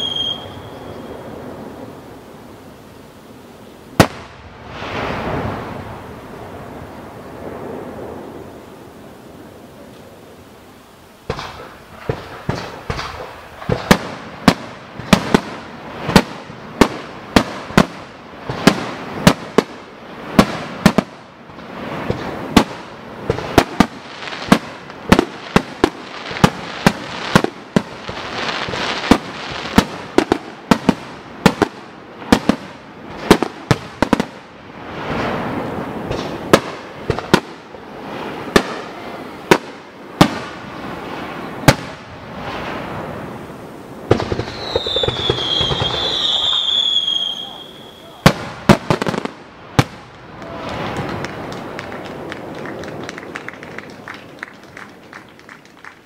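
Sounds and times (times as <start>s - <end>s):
firework crackling and hiss: 0.0s - 56.0s
firework shells bursting: 11.2s - 19.6s.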